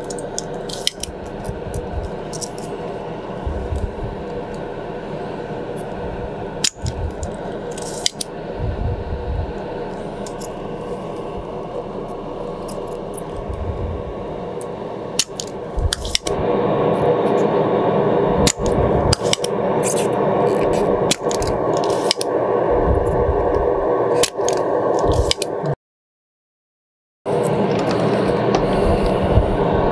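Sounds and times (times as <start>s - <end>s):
desoldering pump snapping: 0.0s - 2.8s, 6.6s - 8.3s, 14.6s - 16.4s, 18.4s - 22.3s
steady background noise: 0.0s - 25.8s, 27.3s - 29.9s.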